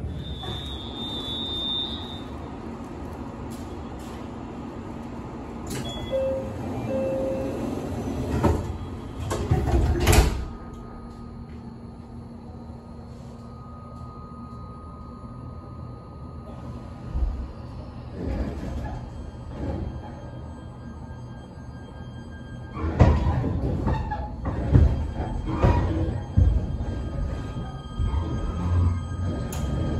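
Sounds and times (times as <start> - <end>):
train car hum: 0.0 - 29.9
train door sliding shut: 5.6 - 10.6.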